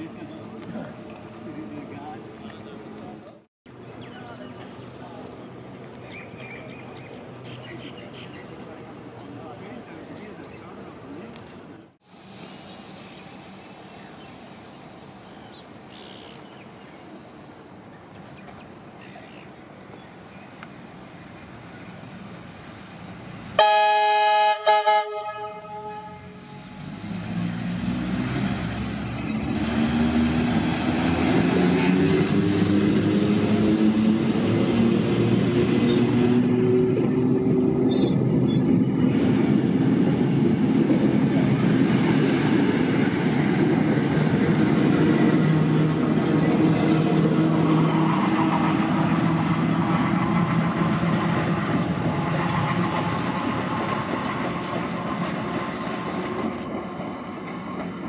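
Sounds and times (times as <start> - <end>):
train rumble: 8.4 - 58.0
train horn blasts: 23.6 - 26.8.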